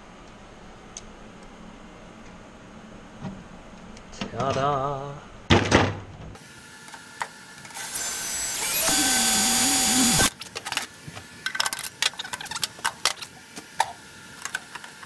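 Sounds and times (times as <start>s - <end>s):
cordless drill whining: 7.8s - 10.3s.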